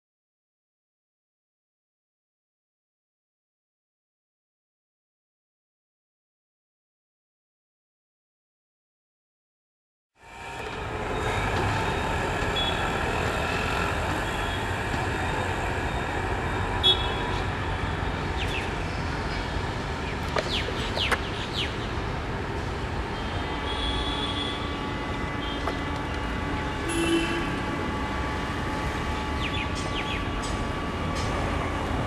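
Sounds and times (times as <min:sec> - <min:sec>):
diesel locomotives idling: 0:10.2 - 0:32.0.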